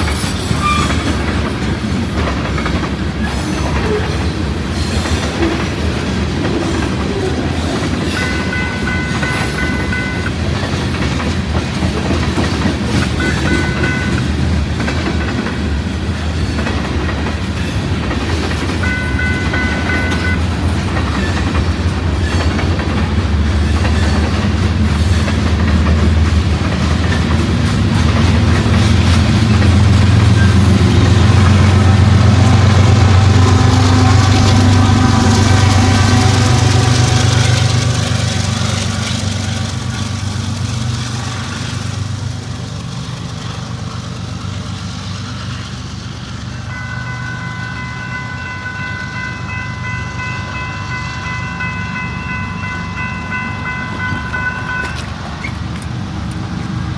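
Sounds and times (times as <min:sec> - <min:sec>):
freight train rumbling past: 0:00.0 - 0:56.9
high multi-tone ringing: 0:08.1 - 0:10.5, 0:13.2 - 0:14.3, 0:18.8 - 0:20.5, 0:46.7 - 0:55.0.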